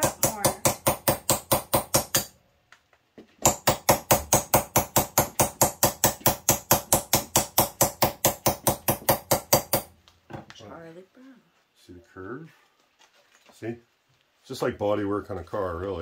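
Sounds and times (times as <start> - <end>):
hammer beating sheet steel: 0.0 - 2.3, 3.4 - 9.9.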